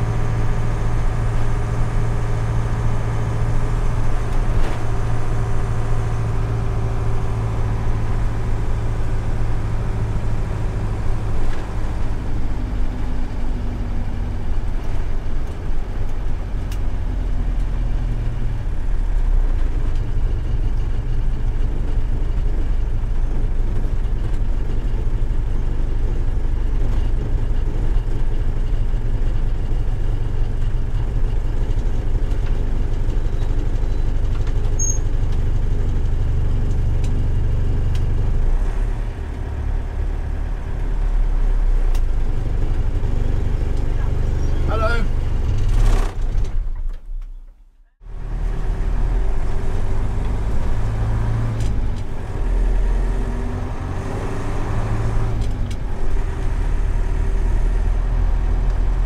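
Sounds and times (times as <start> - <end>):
truck diesel engine droning: 0.0 - 59.0.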